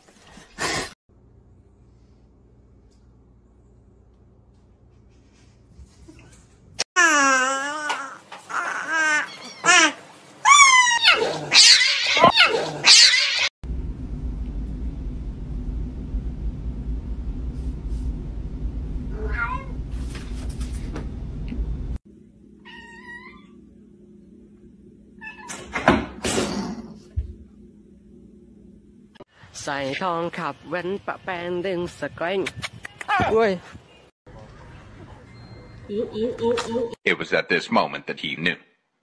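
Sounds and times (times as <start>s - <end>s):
steady low rumble: 13.6s - 22.6s, 26.9s - 29.2s
cat meowing and yowling: 19.2s - 19.8s, 22.6s - 23.6s.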